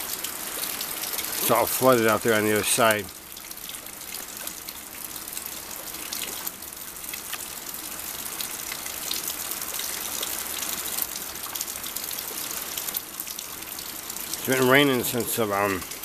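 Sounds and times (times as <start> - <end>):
water rushing: 0.0 - 3.1, 10.7 - 16.0.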